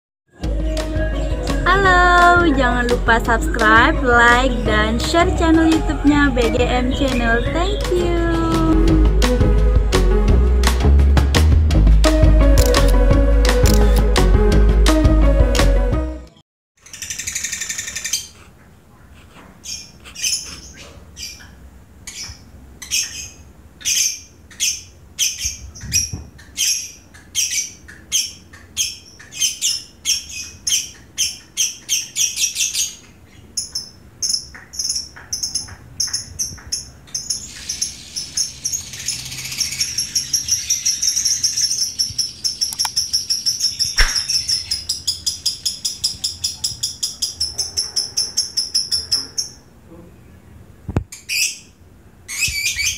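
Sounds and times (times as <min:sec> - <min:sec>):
lovebird high chatter song: 0:00.7 - 0:09.0, 0:16.8 - 0:18.4, 0:22.1 - 0:47.7
lovebirds chirping: 0:01.0 - 0:09.0, 0:19.6 - 0:49.6
short knock: 0:44.0 - 0:44.3.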